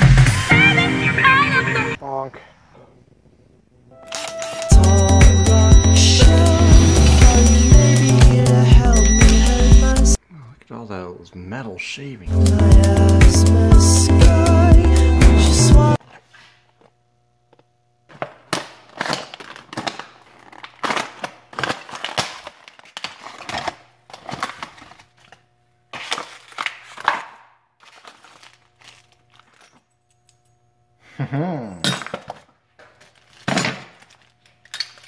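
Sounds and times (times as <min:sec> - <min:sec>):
plastic packaging crinkling: 0:18.7 - 0:27.2, 0:27.8 - 0:29.8, 0:32.8 - 0:35.0
plastic bag rustling: 0:27.8 - 0:29.8, 0:32.9 - 0:34.4
metal parts clinking: 0:33.0 - 0:35.0.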